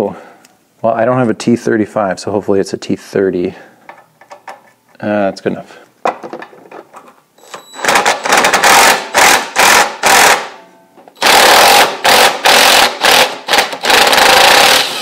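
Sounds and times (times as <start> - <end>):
impact driver hammering: 7.8 - 10.6, 11.2 - 15.0.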